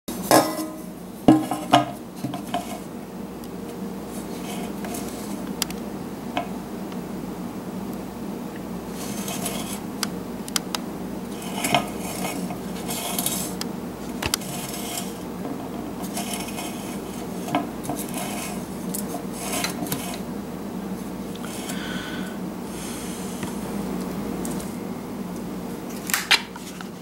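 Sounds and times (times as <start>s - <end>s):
steady low hum: 0.1s - 27.0s.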